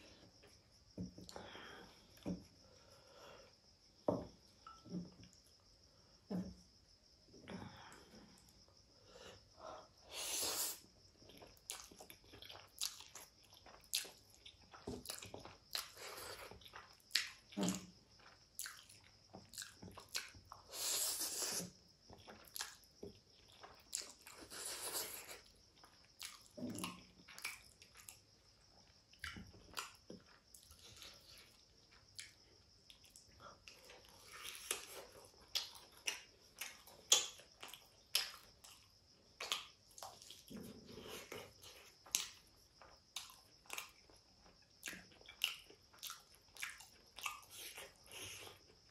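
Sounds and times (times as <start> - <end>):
wet chewing and lip smacks: 11.2 - 20.7, 22.1 - 28.3, 29.1 - 48.9.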